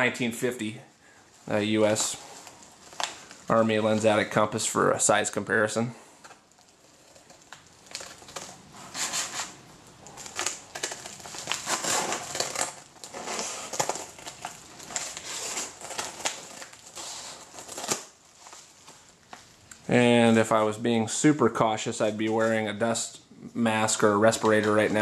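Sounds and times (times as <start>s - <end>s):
paper crinkling: 1.3s - 4.4s, 6.2s - 19.6s, 23.8s - 25.0s.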